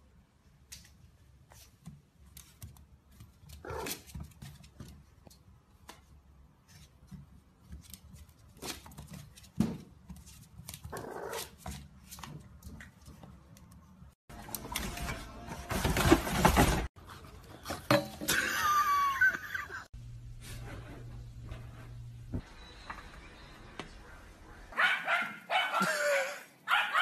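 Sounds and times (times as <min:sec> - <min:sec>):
puppy yapping and growling: 0:03.6 - 0:04.0, 0:10.9 - 0:11.6.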